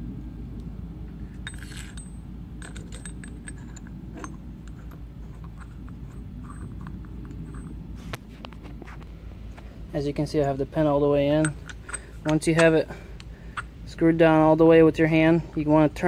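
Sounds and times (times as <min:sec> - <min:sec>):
steady low hum: 0:00.0 - 0:16.0
metallic clicks and taps: 0:11.4 - 0:13.7.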